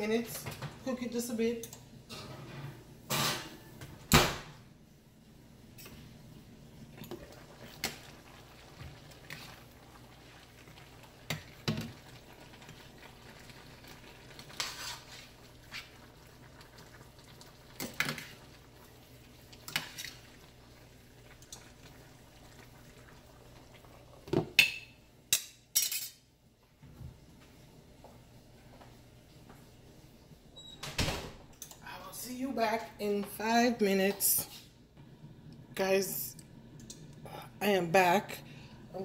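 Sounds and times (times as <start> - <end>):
metal spoon scraping a steel pot: 14.6 - 15.3.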